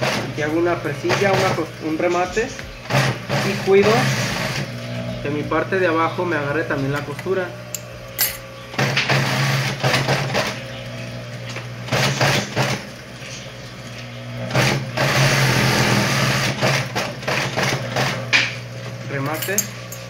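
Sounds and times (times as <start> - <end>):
sewing machine motor humming: 2.8 - 4.9, 8.7 - 10.7, 11.8 - 13.0, 14.4 - 18.4
sewing machine stitching: 2.9 - 4.7, 8.8 - 10.6, 11.9 - 12.9, 14.4 - 18.4.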